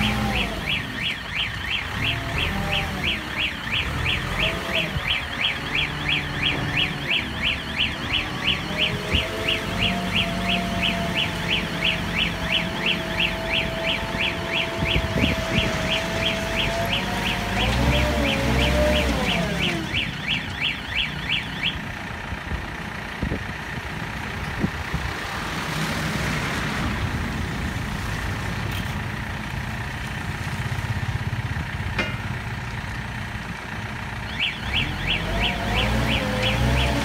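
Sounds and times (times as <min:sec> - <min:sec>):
electronic warning beeper: 0:00.0 - 0:21.9, 0:34.2 - 0:37.0
diesel engine running: 0:00.0 - 0:37.0.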